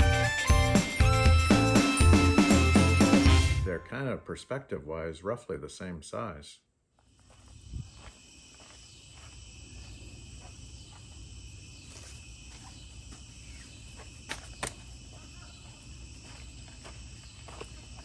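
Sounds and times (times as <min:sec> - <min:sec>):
crickets chirping: 0:07.0 - 0:18.0.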